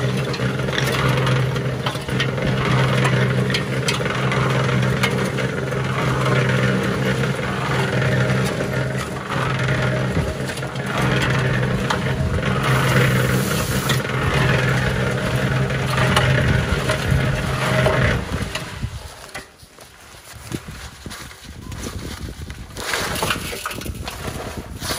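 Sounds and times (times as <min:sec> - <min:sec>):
cement mixer motor humming: 0:00.0 - 0:19.6
drum churning dry concrete mix: 0:00.0 - 0:24.9.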